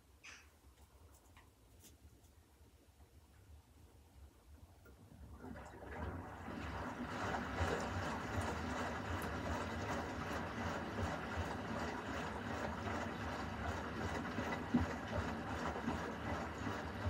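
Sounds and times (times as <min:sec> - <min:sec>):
washing machine rumble: 0:04.8 - 0:17.0
water sloshing in drum: 0:05.2 - 0:17.0.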